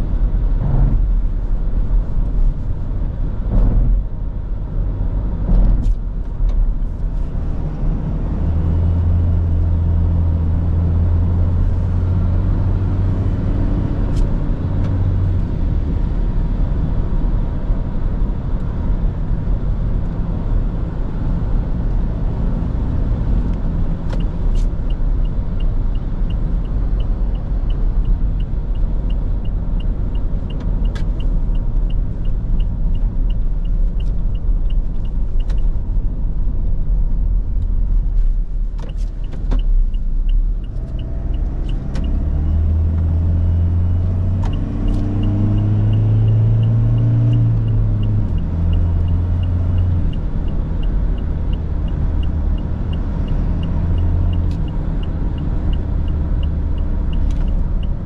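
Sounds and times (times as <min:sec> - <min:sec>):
diesel engine rumble: 0:00.0 - 0:58.0
road noise: 0:00.0 - 0:58.0
light regular ticking: 0:24.2 - 0:35.8, 0:39.1 - 0:42.4, 0:44.5 - 0:58.0.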